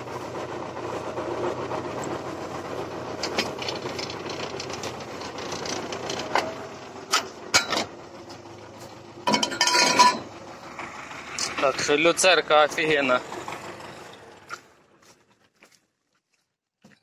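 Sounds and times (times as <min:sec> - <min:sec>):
baler mechanical clatter: 0:01.6 - 0:08.5.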